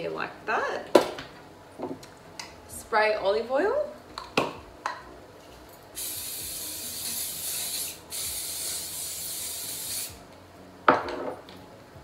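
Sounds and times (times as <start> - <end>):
cooking spray hissing: 6.0 - 10.3.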